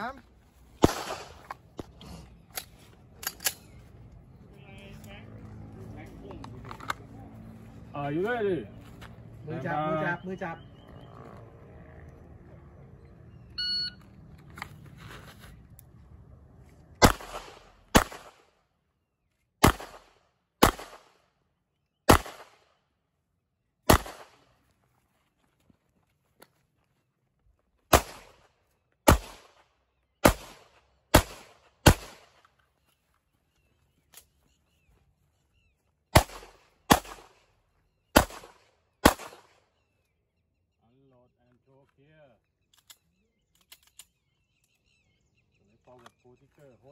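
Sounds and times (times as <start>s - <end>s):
handgun shots: 0.8s - 1.5s, 17.0s - 18.4s, 19.6s - 21.1s, 22.1s - 22.6s, 23.9s - 24.4s, 27.9s - 28.3s, 29.1s - 29.6s, 30.2s - 32.3s, 36.2s - 37.4s, 38.2s - 39.5s
shot timer beep: 13.6s - 14.0s.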